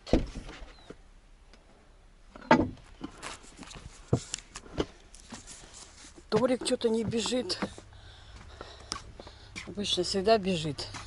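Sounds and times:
footsteps on wooden boards: 2.5 - 11.0.

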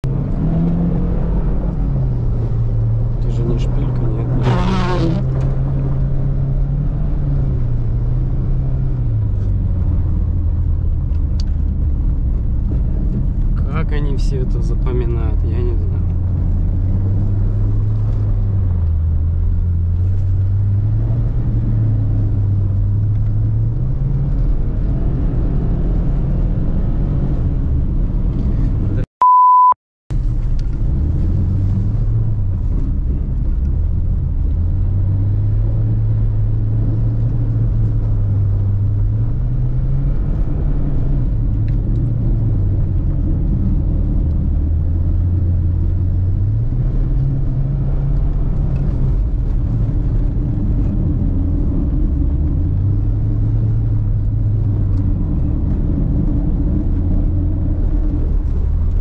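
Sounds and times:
car engine revving under load: 0.0 - 13.6
high steady bleep: 29.2 - 29.8.

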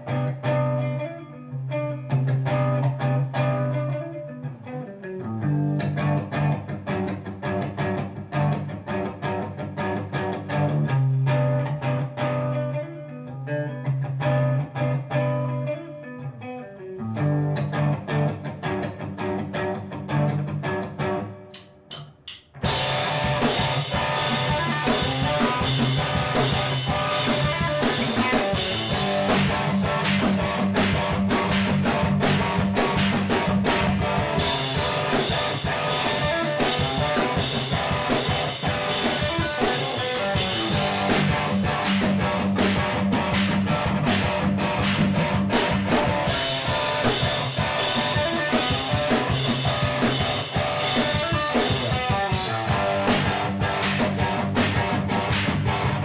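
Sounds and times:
electric guitar playing: 0.0 - 56.0
drum kit with cymbals: 21.5 - 56.0.

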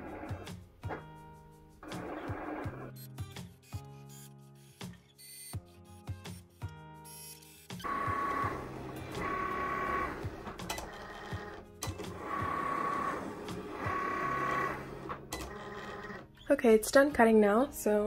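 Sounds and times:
cutting machine motor whine: 7.8 - 16.2.

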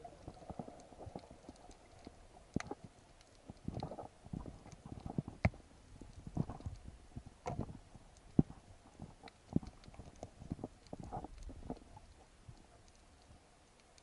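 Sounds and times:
muffled underwater knocks and thumps: 3.5 - 11.9.

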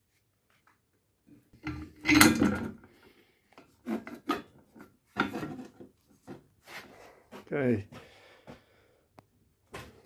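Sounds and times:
rubbing and scraping handling noises: 3.5 - 7.8.

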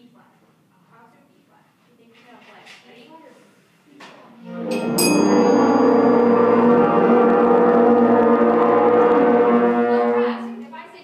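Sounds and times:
wind band holding a long note: 4.4 - 10.8.

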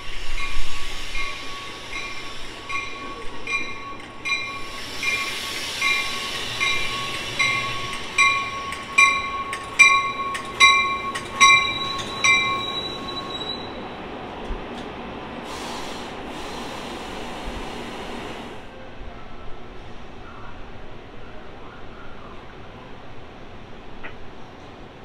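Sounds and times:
high brake squeal: 0.0 - 8.6, 10.9 - 14.0
low rumble of train rolling: 0.0 - 25.0
train bell ringing: 0.3 - 13.9.

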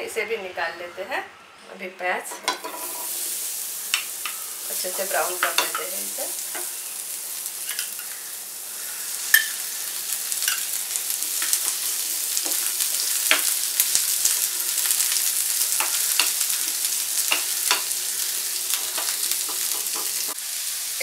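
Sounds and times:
onions sizzling in a pan: 1.8 - 21.0
spatula scraping and tapping pan: 2.3 - 3.2, 3.9 - 5.9, 10.4 - 13.6, 15.7 - 18.0, 18.7 - 20.4.

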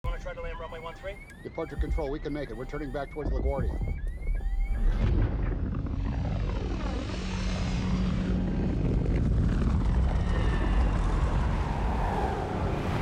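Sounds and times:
jet airliner flying past: 7.0 - 13.0.

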